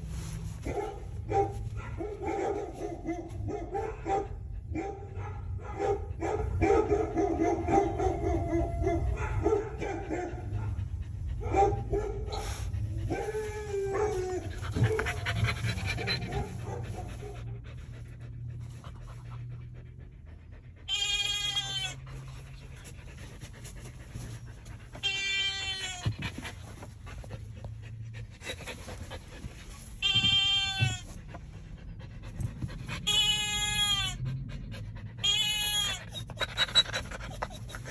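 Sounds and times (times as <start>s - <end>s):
low car cabin hum: 0.0s - 20.8s
dog whining: 12.3s - 16.6s, 20.8s - 22.4s, 24.8s - 26.5s, 30.0s - 31.2s, 32.9s - 34.4s, 35.0s - 37.9s
bleat-like calls: 20.9s - 22.0s, 25.0s - 26.1s, 30.0s - 31.1s, 33.1s - 34.2s, 35.2s - 36.1s.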